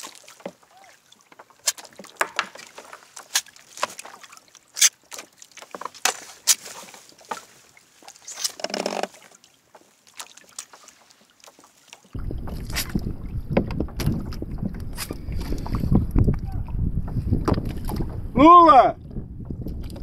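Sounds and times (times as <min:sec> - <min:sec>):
small splashes: 0:00.0 - 0:16.7
water slapping against kayak hull: 0:00.0 - 0:20.0.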